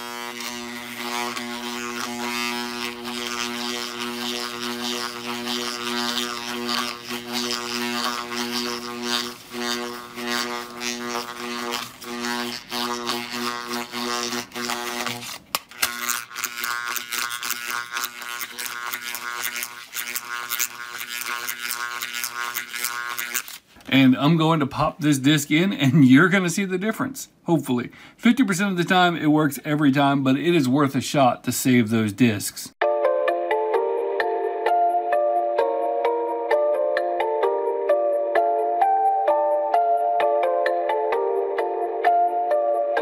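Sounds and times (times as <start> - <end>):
buzz with rapid rattle: 0.0 - 23.6
electromagnet humming: 0.0 - 25.4.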